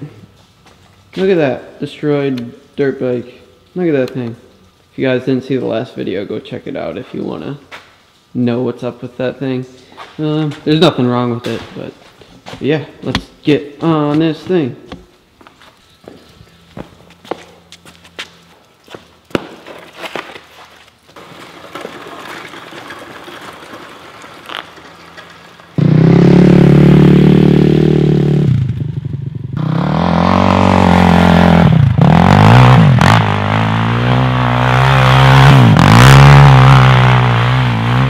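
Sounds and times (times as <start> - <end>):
footsteps on concrete: 11.4 - 21.2
quad engine revving: 25.8 - 38.0.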